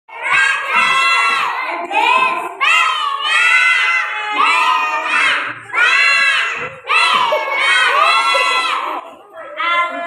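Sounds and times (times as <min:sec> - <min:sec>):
children singing in unison: 0:00.1 - 0:10.0.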